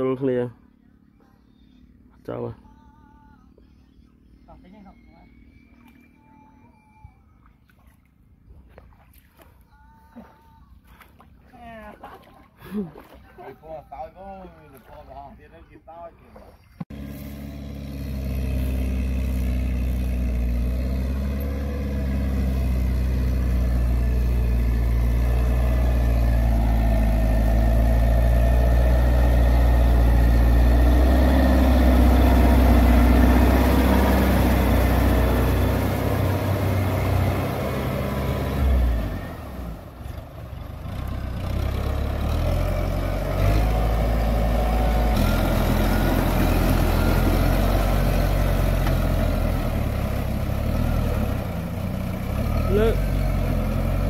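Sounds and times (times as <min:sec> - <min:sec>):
tractor diesel engine running: 0:16.8 - 0:54.0.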